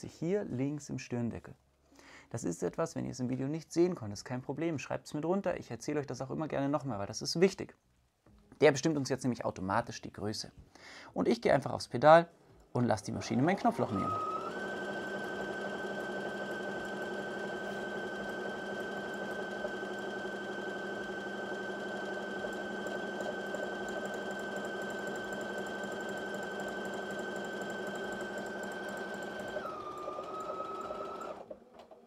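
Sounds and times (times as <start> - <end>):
sewing machine motor whining: 13.2 - 31.9.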